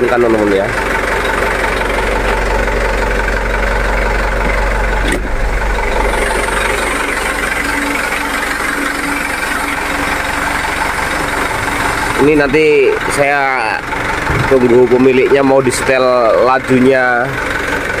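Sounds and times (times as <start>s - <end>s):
diesel truck engine idling: 0.0s - 18.0s.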